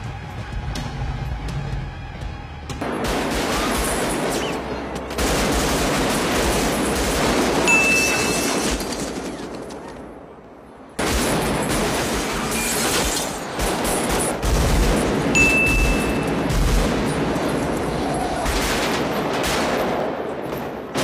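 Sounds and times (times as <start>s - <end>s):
rapid automatic rifle fire: 2.8s - 9.8s, 11.0s - 17.6s, 18.5s - 21.0s.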